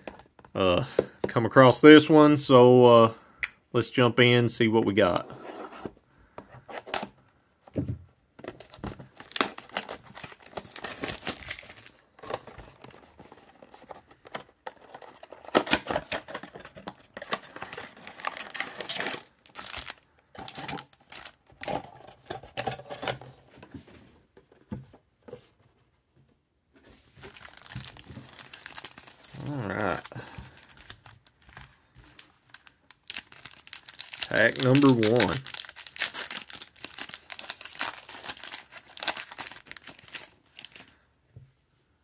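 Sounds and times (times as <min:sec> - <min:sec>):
cardboard and wrapping crinkling: 0:07.7 - 0:25.6, 0:26.9 - 0:41.0.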